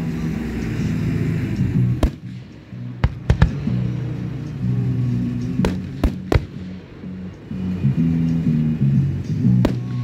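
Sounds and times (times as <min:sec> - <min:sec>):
music playing: 0:00.0 - 0:10.0
fireworks bursting: 0:03.0 - 0:04.0, 0:05.6 - 0:06.7.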